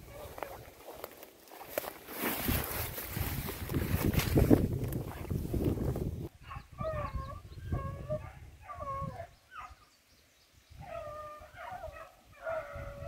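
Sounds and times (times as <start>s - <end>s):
hounds baying: 6.4s - 9.8s, 10.8s - 13.0s.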